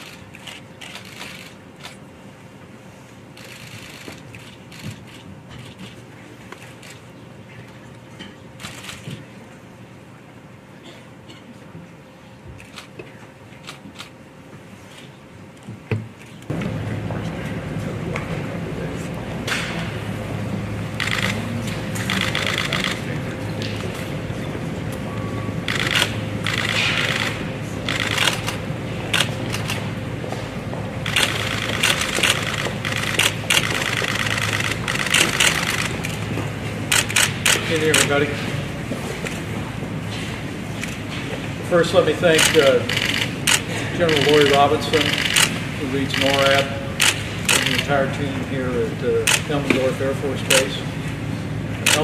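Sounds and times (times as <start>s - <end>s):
steady hangar hum: 0.0s - 52.0s
camera shutters firing: 25.7s - 28.6s, 31.1s - 36.1s.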